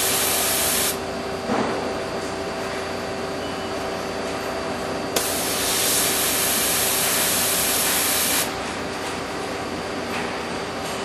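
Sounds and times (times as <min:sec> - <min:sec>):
compressed air hissing: 0:00.0 - 0:01.0, 0:05.2 - 0:08.5.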